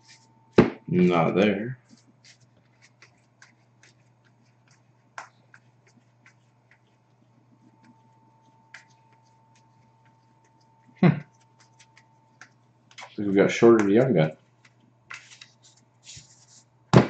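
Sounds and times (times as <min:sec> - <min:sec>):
faint steady hum: 0:00.0 - 0:17.0
cards being flipped: 0:14.6 - 0:17.0.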